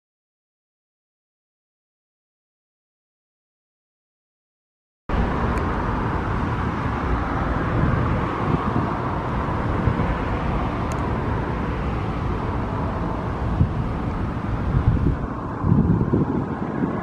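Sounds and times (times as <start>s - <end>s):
road traffic: 5.1s - 17.0s
wind rumbling on microphone: 5.1s - 17.0s.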